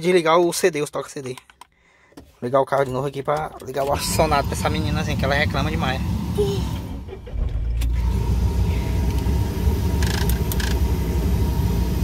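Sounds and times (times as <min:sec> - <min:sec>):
car engine starting and idling: 0:03.6 - 0:12.0.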